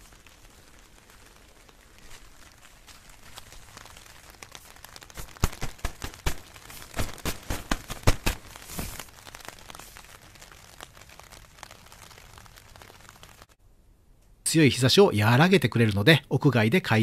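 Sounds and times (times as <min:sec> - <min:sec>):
plastic tarp crinkling: 0:00.0 - 0:13.6
faint steady hiss: 0:00.0 - 0:17.0.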